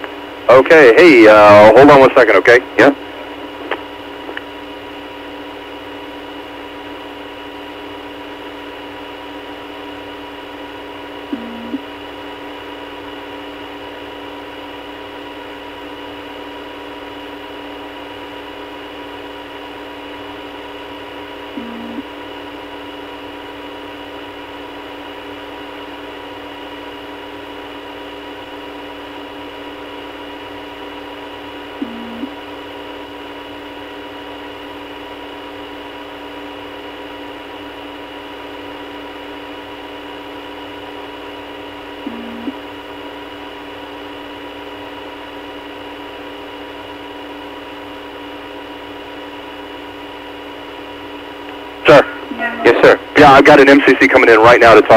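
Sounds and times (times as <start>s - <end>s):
telephone line hum and hiss: 0.0s - 54.9s
short low beeps: 11.3s - 11.8s, 21.6s - 22.0s, 31.8s - 32.3s, 42.1s - 42.6s.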